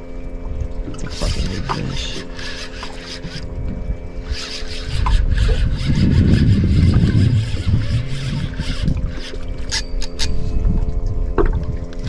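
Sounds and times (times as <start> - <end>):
fishing reel ticking: 1.0 - 3.5, 4.2 - 10.5
low rumble: 3.4 - 9.7, 10.3 - 12.0.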